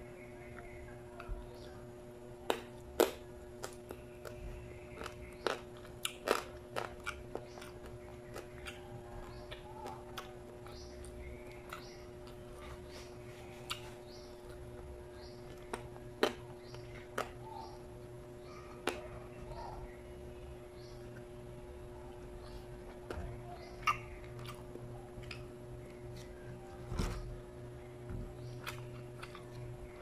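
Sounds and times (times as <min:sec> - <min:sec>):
person chewing with wet smacks: 0:02.5 - 0:17.8, 0:22.1 - 0:26.4, 0:28.4 - 0:30.0.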